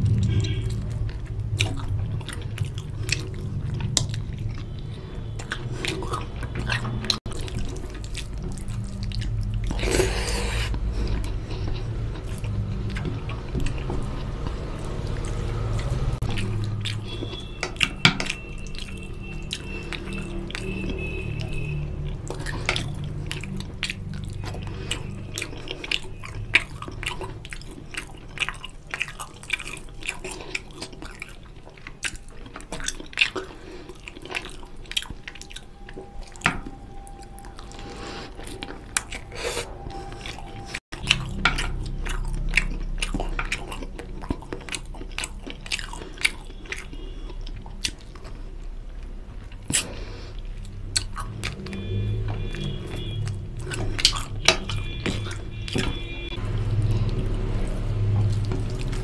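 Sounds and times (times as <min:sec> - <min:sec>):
chewing and lip smacks: 0:00.0 - 0:59.0.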